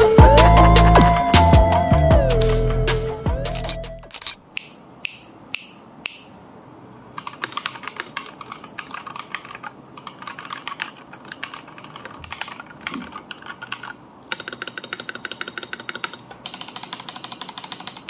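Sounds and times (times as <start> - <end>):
fast typing on mechanical keyboard: 7.2 - 18.0.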